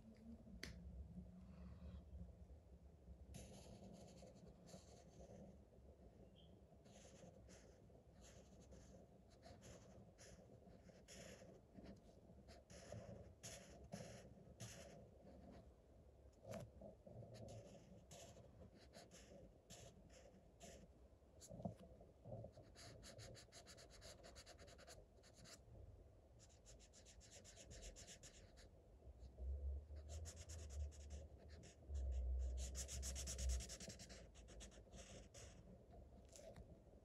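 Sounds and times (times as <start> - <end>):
marker scribbling on paper: 6.8 - 15.6, 17.3 - 20.9, 22.5 - 25.6, 26.5 - 28.7, 30.0 - 35.6.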